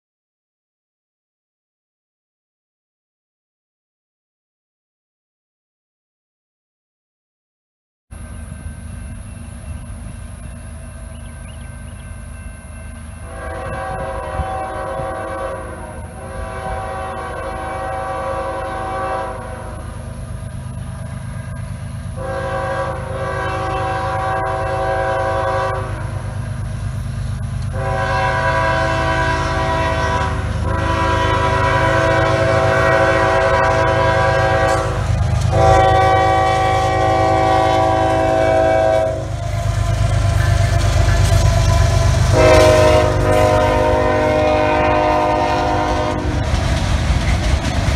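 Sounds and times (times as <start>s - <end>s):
locomotive engine rumble: 8.2s - 47.9s
train horn blasts: 13.2s - 20.1s, 22.2s - 26.4s, 27.7s - 46.5s.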